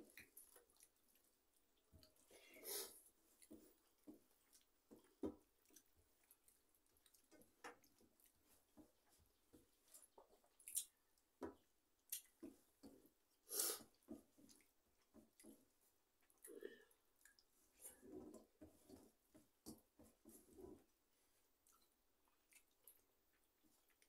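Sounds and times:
people chewing: 0.0 - 24.0.

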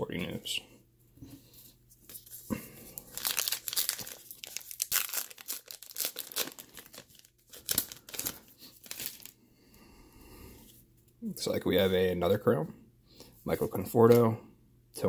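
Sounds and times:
card pack wrapper tearing and crinkling: 3.0 - 9.4.

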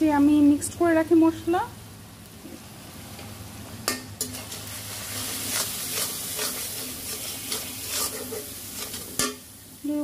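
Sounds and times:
spices sizzling in oil: 0.0 - 10.0
metal spatula scraping a pan: 4.2 - 9.5.

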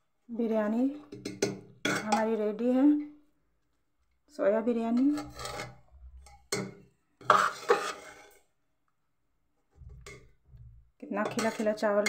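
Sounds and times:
spoon scraping pressure cooker: 4.9 - 8.4, 11.2 - 12.0.

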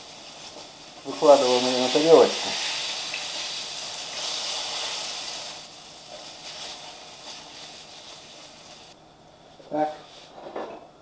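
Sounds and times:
fish frying in oil: 0.0 - 9.0.

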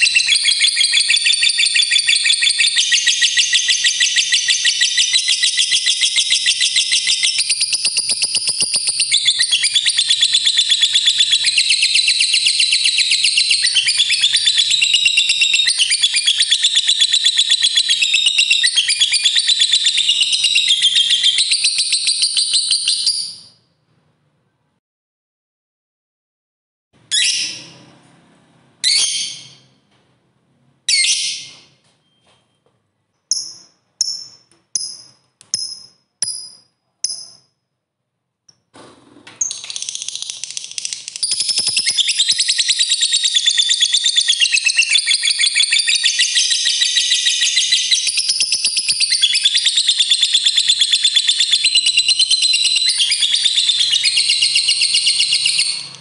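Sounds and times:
bird rapid chatter: 0.0 - 23.1, 39.4 - 55.9.

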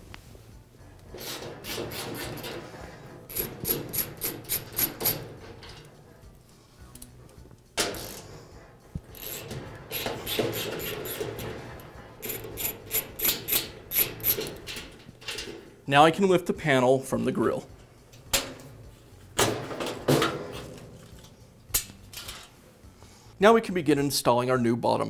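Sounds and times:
socket wrench ratchet clicking: 3.3 - 5.8, 7.8 - 8.4, 9.1 - 11.6, 12.2 - 15.5.

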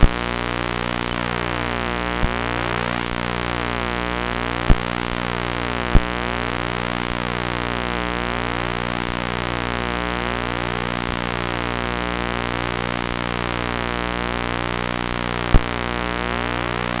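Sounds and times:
pulsing electronic buzzing drone: 0.0 - 17.0
low hum: 15.3 - 17.0
sharp click: 15.5 - 15.7.

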